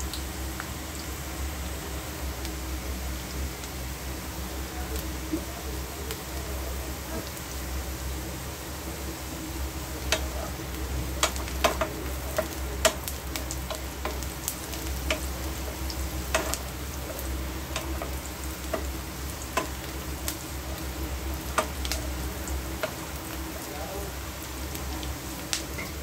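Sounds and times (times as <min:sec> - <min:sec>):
food sizzling in oil: 0:00.0 - 0:26.0
low steady hum: 0:00.0 - 0:26.0
metal spoon clicking on pan: 0:11.2 - 0:13.0, 0:16.3 - 0:16.6, 0:17.7 - 0:18.9, 0:19.6 - 0:19.8, 0:21.5 - 0:22.0.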